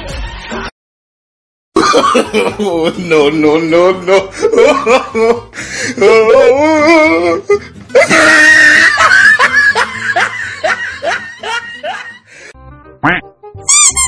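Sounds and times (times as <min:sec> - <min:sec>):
person laughing: 0:08.0 - 0:12.2.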